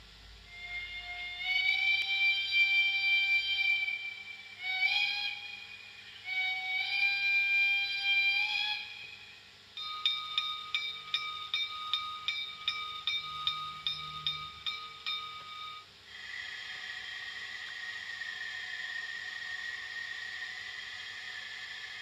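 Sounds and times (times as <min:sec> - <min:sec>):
rhythmic locomotive beat: 0:00.0 - 0:16.0
steady tone: 0:00.0 - 0:22.0
steam hiss: 0:00.0 - 0:22.0.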